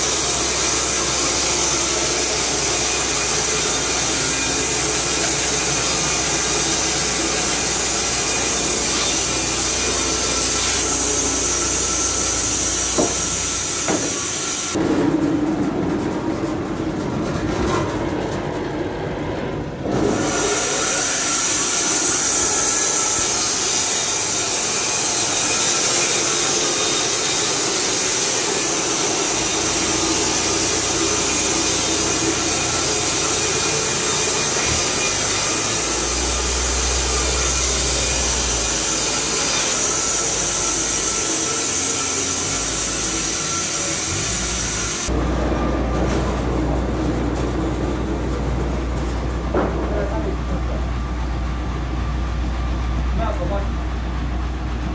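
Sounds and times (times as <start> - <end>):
band saw cutting log: 0.0 - 14.8, 19.8 - 45.2.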